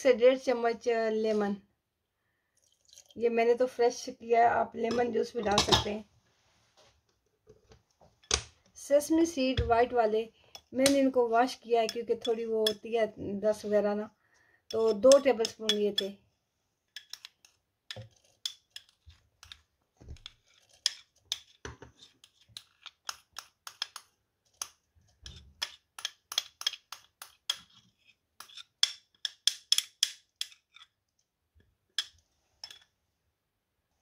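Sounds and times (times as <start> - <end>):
metal spoon scraping glass bowl: 11.8 - 12.9, 14.7 - 16.1, 17.0 - 19.6, 20.2 - 23.9, 24.5 - 28.9.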